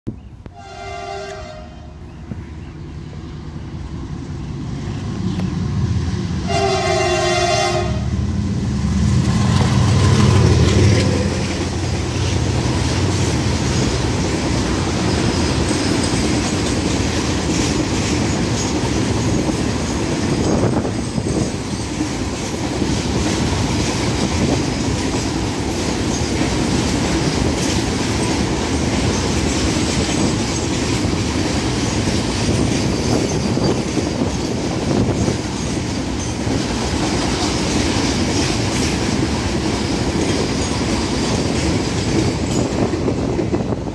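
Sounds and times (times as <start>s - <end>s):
locomotive passing: 0.3s - 43.9s
train horn: 0.5s - 2.0s, 6.4s - 8.3s
train wheels clacking over rail joints: 9.2s - 43.9s.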